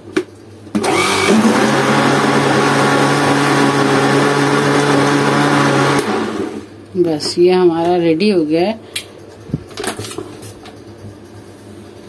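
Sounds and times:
blender running: 0.7s - 6.7s.

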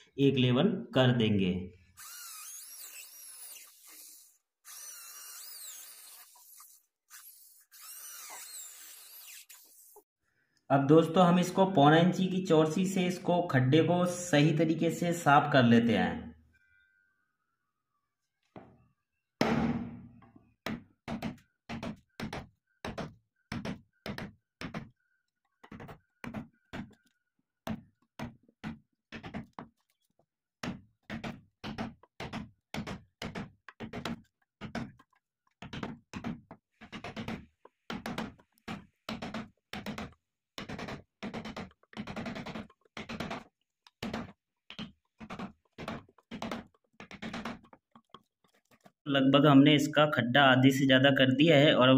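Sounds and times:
chisel blows chopping wood: 19.4s - 22.4s.

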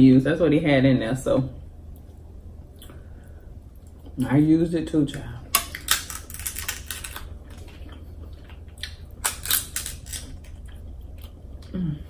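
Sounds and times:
crab shell cracking: 5.1s - 7.7s, 8.8s - 10.7s.

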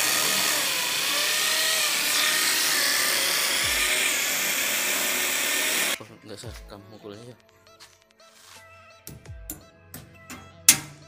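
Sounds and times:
electric power tool whirring: 0.0s - 6.0s.

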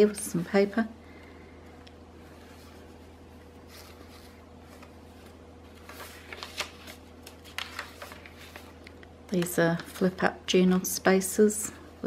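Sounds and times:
paper pages rustling: 2.4s - 10.2s.

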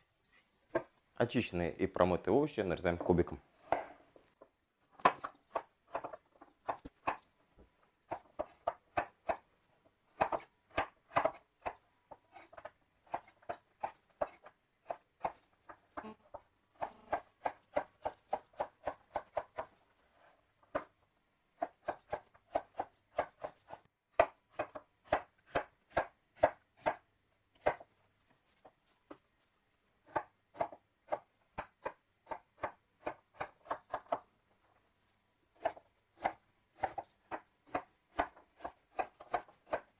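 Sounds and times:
knife chopping on wooden board: 10.2s - 15.4s, 21.6s - 27.0s, 27.6s - 27.9s, 35.6s - 39.9s.

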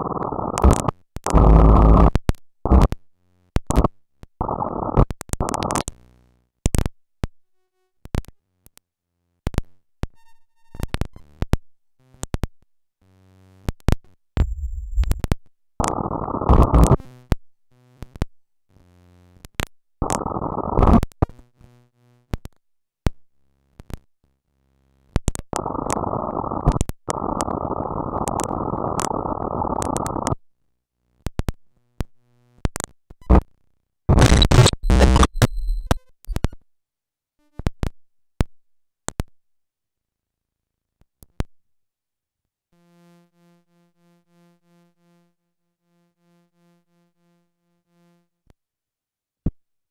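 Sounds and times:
stuttering low tones: 14.4s - 15.4s
sharp clicks and pops: 26.6s - 30.4s, 34.1s - 36.5s
digital glitch static: 34.1s - 36.0s.

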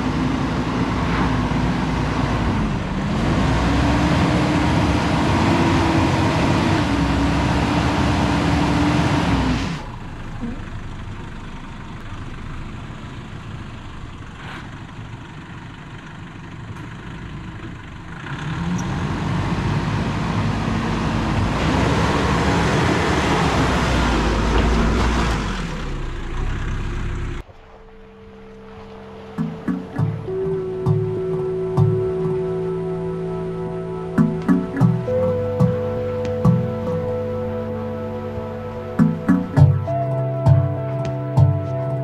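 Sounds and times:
engine revving under load: 0.0s - 10.7s, 18.0s - 27.4s, 29.3s - 42.0s.

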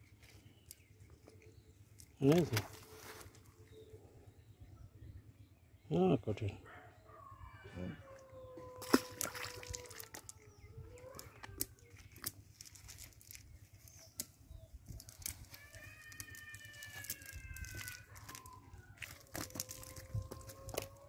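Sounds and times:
fish flapping on ground: 8.8s - 10.5s, 11.2s - 14.3s, 14.9s - 21.0s
net rustling: 11.9s - 14.1s, 15.0s - 20.8s.

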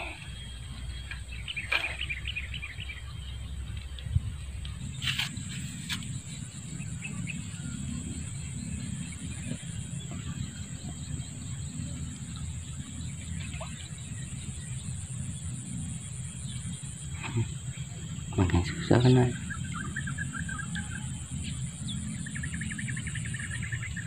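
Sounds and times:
insects droning: 0.0s - 24.0s
low rumble: 0.0s - 24.0s
pulsing insect trill: 4.8s - 24.0s.

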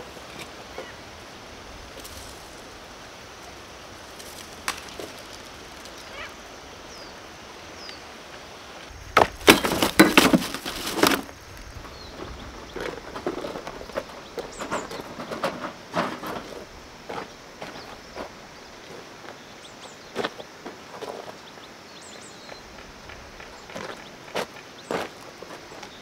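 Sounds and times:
steady outdoor hiss: 0.0s - 26.0s
loud clattering knocks: 9.2s - 11.3s.

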